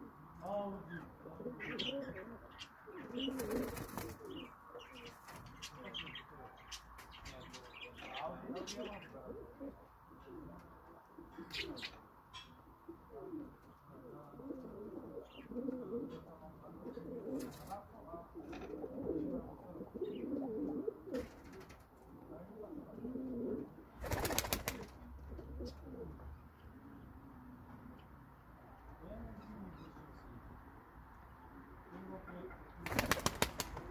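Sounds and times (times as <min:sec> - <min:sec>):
pigeons cooing: 0:00.8 - 0:06.2, 0:11.2 - 0:12.0, 0:12.9 - 0:17.7, 0:18.4 - 0:27.1.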